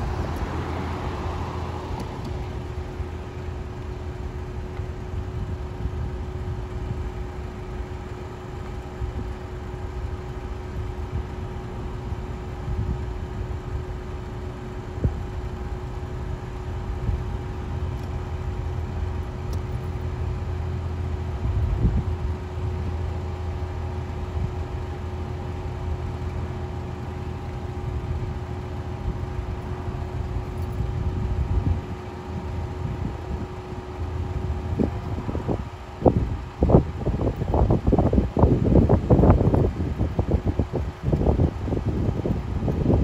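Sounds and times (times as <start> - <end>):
low engine rumble: 0.0 - 43.0
wind buffeting microphone: 19.6 - 23.2, 27.2 - 43.0.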